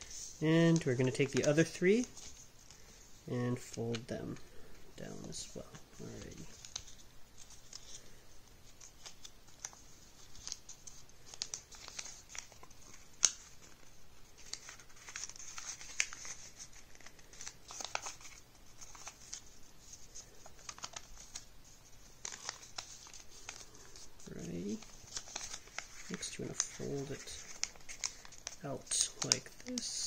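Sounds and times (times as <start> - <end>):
paper rustling and crinkling: 0.0 - 30.0.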